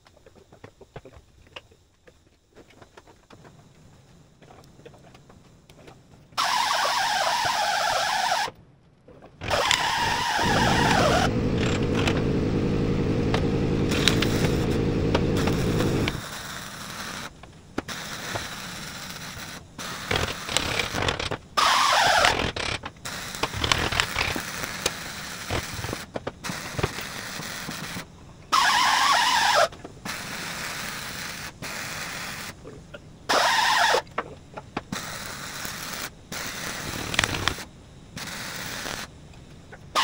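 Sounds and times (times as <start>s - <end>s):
welding bursts: 6.4s - 8.5s, 9.4s - 32.6s, 33.3s - 34.1s, 34.8s - 39.2s
loud low rumble: 10.4s - 16.2s.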